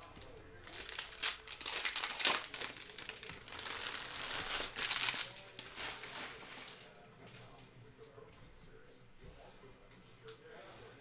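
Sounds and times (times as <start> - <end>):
foil wrappers crinkling: 0.0 - 7.0.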